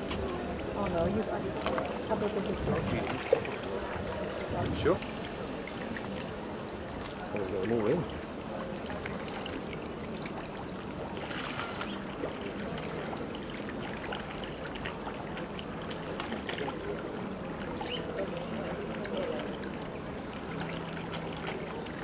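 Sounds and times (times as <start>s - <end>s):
fish splashing on water surface: 8.0s - 22.0s.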